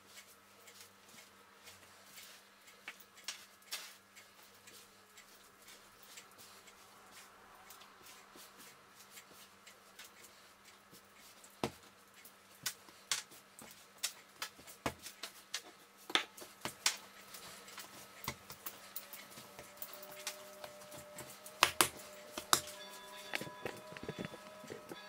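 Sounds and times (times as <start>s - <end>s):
dough kneaded by hand: 19.4s - 25.0s.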